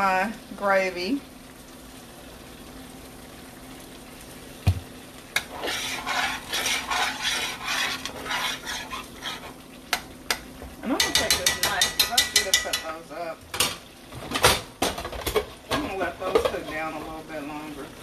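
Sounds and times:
spoon scraping skillet: 5.4 - 13.0.

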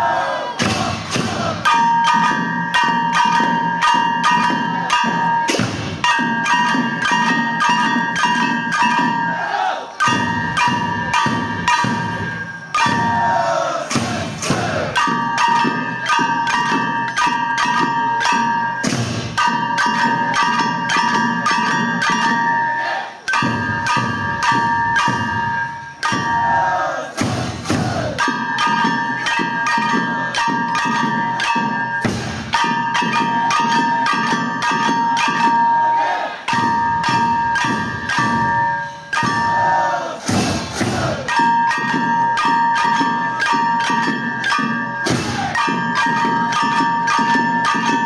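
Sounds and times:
brass hand gongs struck rapidly: 10.0 - 22.6.

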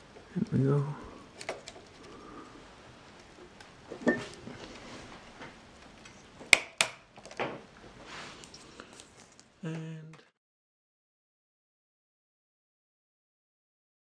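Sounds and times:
hands fumbling with computer parts: 1.3 - 2.1
sharp plastic clicks: 6.0 - 7.4.

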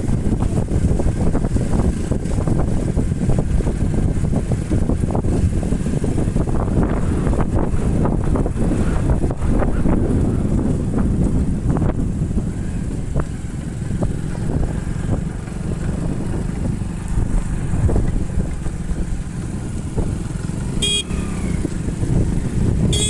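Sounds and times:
low road rumble: 0.0 - 23.0
motorcycle engine cruising: 0.0 - 23.0
horn beep: 20.8 - 21.6.

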